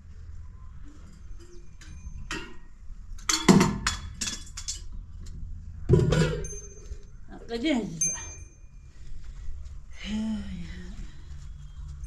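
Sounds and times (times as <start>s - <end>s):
sharp knocks and clatters: 1.8s - 5.0s.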